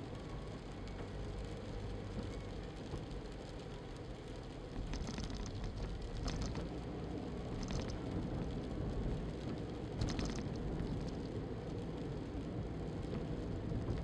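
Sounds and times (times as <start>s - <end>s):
car engine and tyres rumbling: 0.0s - 14.0s.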